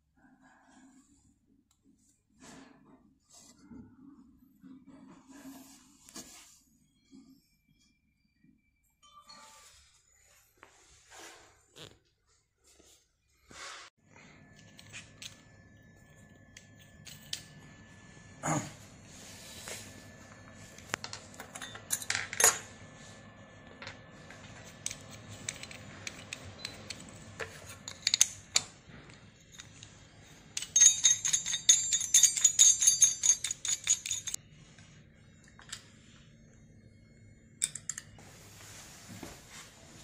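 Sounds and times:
small metal parts clicking: 30.6s - 34.4s.

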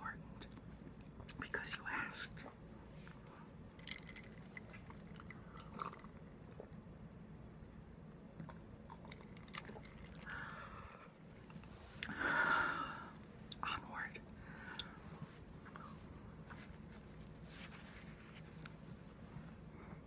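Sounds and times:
quiet chewing: 2.4s - 6.8s
breathy whisper-like sound: 11.9s - 16.7s.

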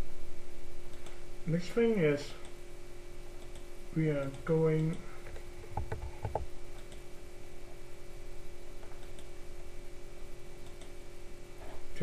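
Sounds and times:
low electrical hum: 0.0s - 12.0s
computer mouse clicking: 0.9s - 1.2s, 3.4s - 7.1s, 8.8s - 9.4s, 10.6s - 11.0s.

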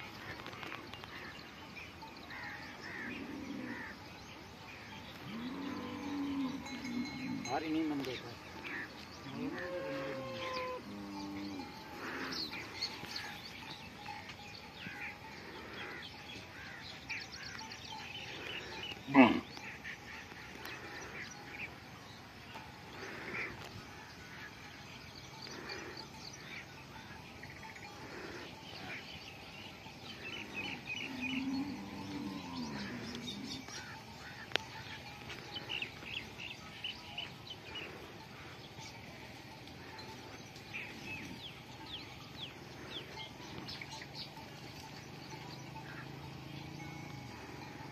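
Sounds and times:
small birds chirping: 0.0s - 47.9s
low drawn-out animal call: 8.6s - 13.2s, 18.2s - 21.6s, 30.1s - 36.0s.

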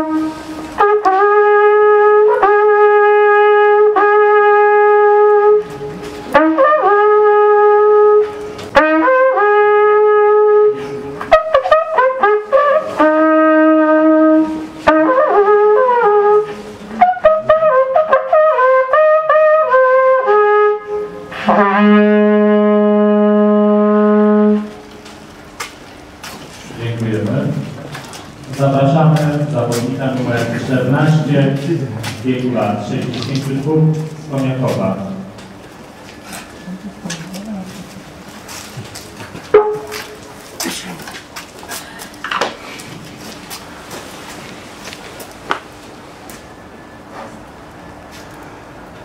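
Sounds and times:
wooden horn playing solo: 0.0s - 25.1s, 39.5s - 40.3s.

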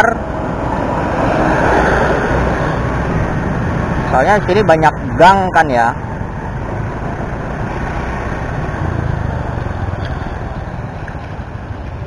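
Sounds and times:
road and wind noise: 0.0s - 12.0s
scooter engine hum: 6.0s - 12.0s.

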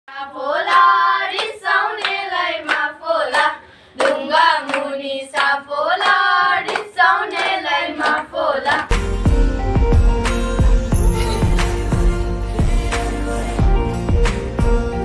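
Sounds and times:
girls singing together: 0.1s - 8.9s
hand clapping in time: 0.6s - 9.0s.

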